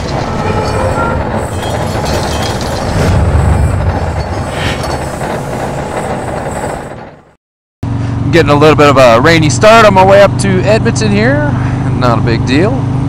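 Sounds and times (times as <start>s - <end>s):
heavy machinery rumble with clattering: 0.0s - 7.3s.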